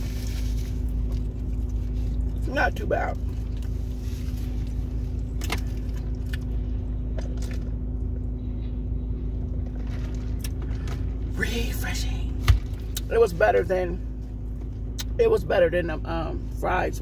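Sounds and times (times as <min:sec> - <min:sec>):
car engine idling: 0:00.0 - 0:17.0.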